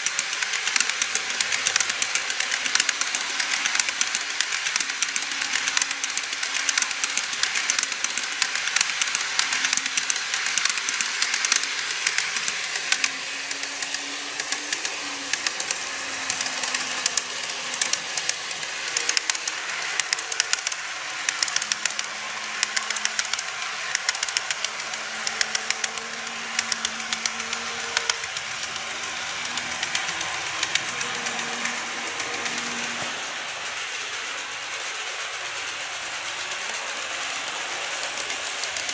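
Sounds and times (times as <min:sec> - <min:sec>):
train wheels clicking over rail joints: 0:00.0 - 0:38.9.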